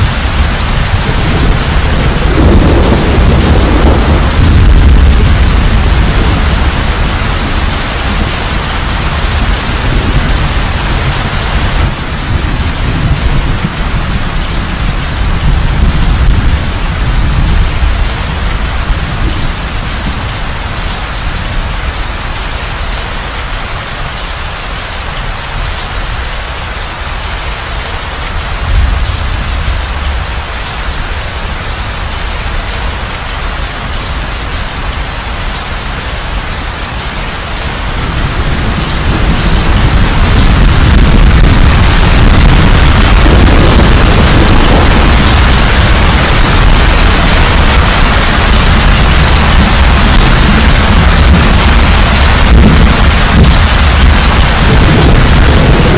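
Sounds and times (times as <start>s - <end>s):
rolling thunder: 0.0s - 20.4s, 28.5s - 32.3s, 37.4s - 55.9s
heavy rain: 0.0s - 55.9s.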